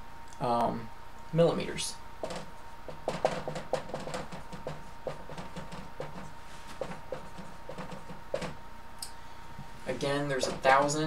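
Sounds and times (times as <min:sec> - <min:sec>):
marker squeaking on whiteboard: 0:02.2 - 0:08.6.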